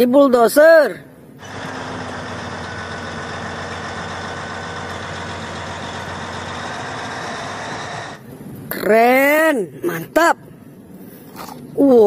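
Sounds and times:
bulldozer diesel engine idling: 0:01.4 - 0:08.2.

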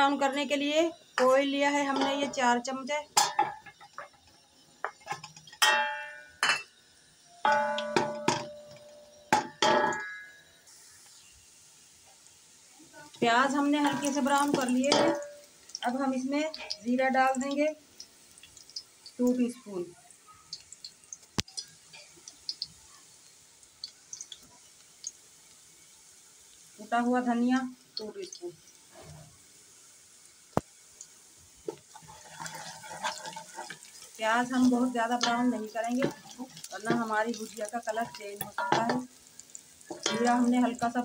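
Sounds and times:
onions sizzling in oil: 0:00.0 - 0:41.0
spoon knocking against metal pot: 0:07.5 - 0:10.2, 0:14.0 - 0:15.4, 0:38.4 - 0:39.1.

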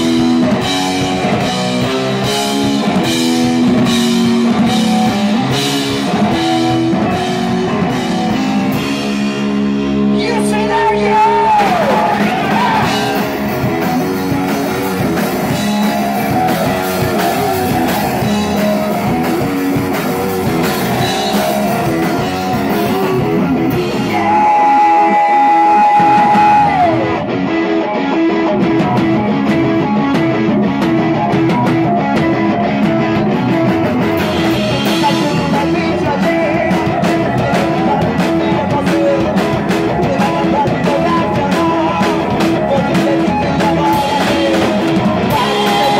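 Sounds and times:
rock band playing live: 0:00.0 - 0:45.9
person singing lead vocals: 0:10.0 - 0:45.9.

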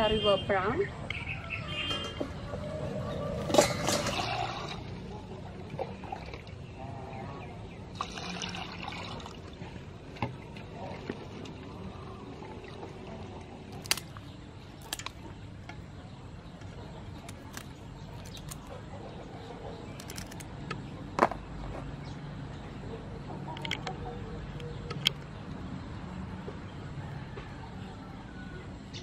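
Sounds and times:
clicks and snips of trimming prawns: 0:13.7 - 0:15.2, 0:17.2 - 0:18.7, 0:19.9 - 0:20.5.

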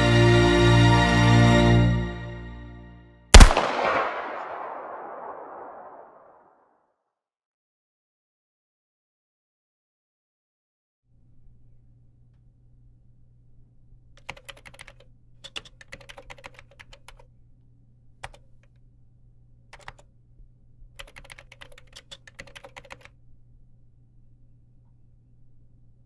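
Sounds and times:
low hum: 0:03.4 - 0:06.4
typing on a keyboard: 0:14.2 - 0:17.3, 0:18.2 - 0:18.8, 0:19.7 - 0:20.1, 0:21.0 - 0:23.2.

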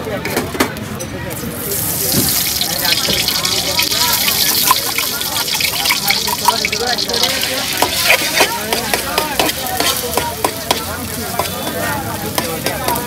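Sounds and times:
egg sizzling in a pan: 0:01.4 - 0:13.0
metal fork scraping a pan: 0:04.2 - 0:11.8.

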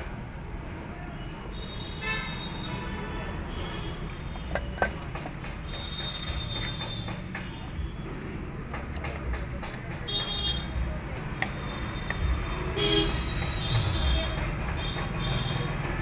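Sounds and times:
traffic rumble: 0:00.0 - 0:16.0
vehicle horn toots: 0:01.6 - 0:04.9, 0:11.8 - 0:15.6.

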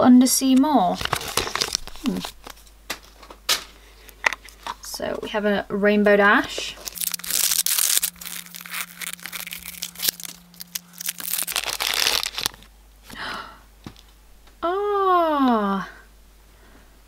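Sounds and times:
foil bag crinkling and tearing: 0:00.8 - 0:02.6, 0:06.8 - 0:12.7.

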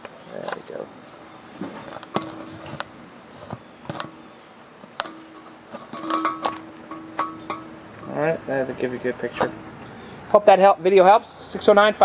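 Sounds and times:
handling clicks and knocks: 0:01.6 - 0:04.2, 0:04.8 - 0:08.2.

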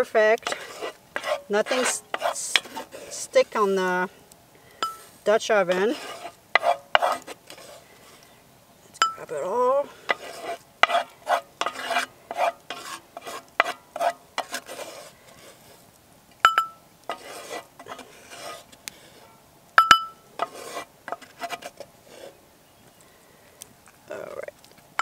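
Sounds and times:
spatula scraping cast-iron pot: 0:00.0 - 0:22.4
sharp ringing knocks: 0:19.8 - 0:20.2.

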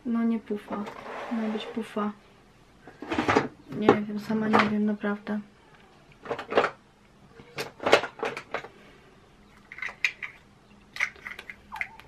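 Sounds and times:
makeup containers clattering: 0:07.6 - 0:08.8, 0:09.6 - 0:10.4.

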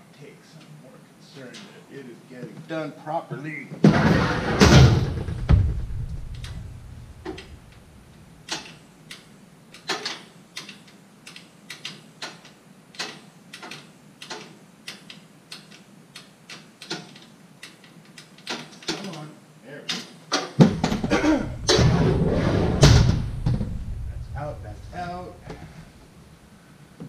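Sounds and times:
heavy ringing thud: 0:04.0 - 0:07.6, 0:20.6 - 0:25.9.

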